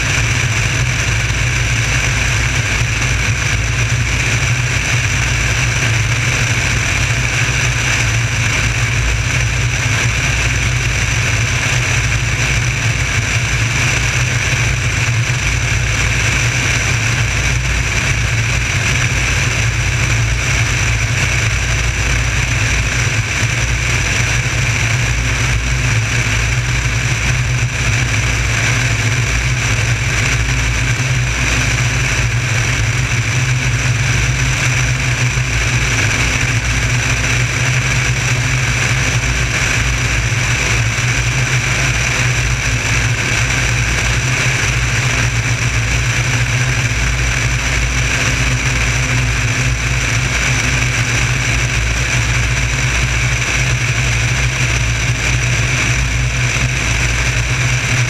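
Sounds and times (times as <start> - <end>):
airplane engine and propeller drone: 0.0 - 58.0.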